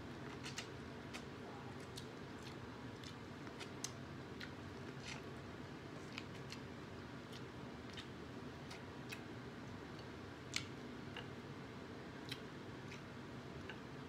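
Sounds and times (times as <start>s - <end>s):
steady low hum: 0.0s - 14.0s
wet chewing mouth clicks: 0.3s - 5.3s, 7.3s - 9.3s, 12.3s - 13.8s.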